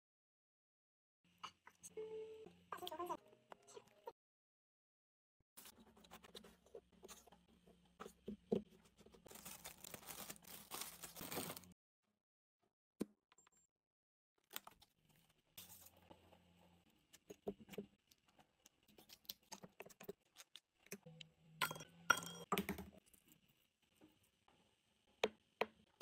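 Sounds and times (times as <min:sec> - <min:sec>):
glass bowls clinking: 0:21.6 - 0:22.5.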